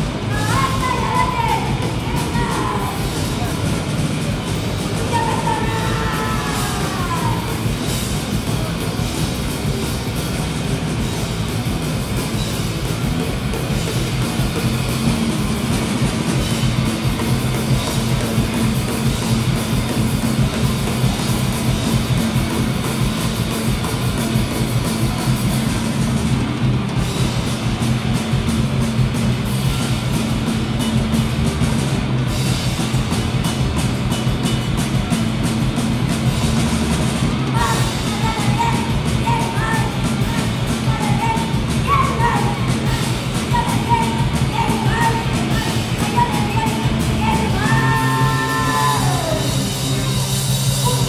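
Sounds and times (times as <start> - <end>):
distorted electric guitar chords: 0.0 - 51.0
rapid drumming: 0.0 - 51.0.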